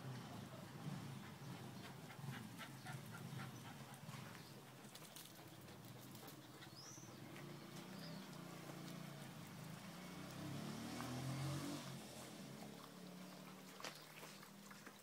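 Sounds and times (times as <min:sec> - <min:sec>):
dogs panting: 0:01.1 - 0:09.0.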